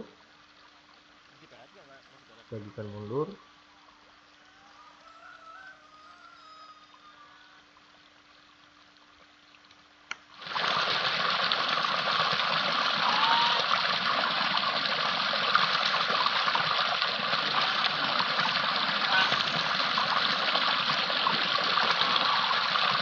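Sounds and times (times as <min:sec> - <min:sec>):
faint low hum: 0:00.0 - 0:23.0
running water rushing: 0:07.0 - 0:23.0.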